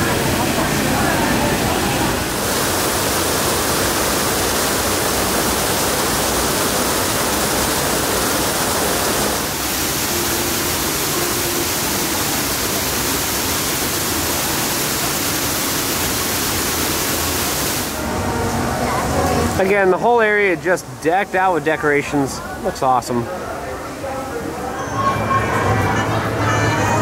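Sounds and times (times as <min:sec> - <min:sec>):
steady rushing noise: 0:00.0 - 0:21.4.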